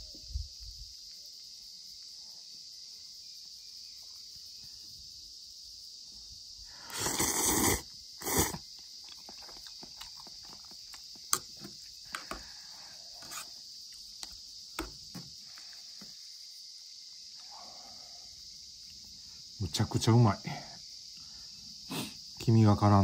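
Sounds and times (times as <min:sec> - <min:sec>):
high insect drone: 0:00.0 - 0:23.0
noodles slurped: 0:06.9 - 0:11.0.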